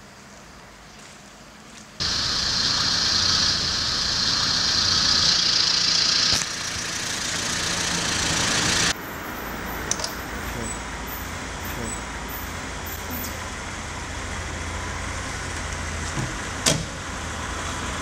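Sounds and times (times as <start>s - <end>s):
car engine running: 2.0s - 9.0s.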